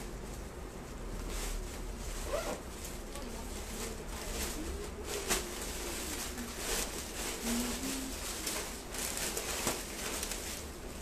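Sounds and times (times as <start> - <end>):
clothing fabric rustling: 0.0 - 11.0
faint low cooing call: 7.3 - 8.8.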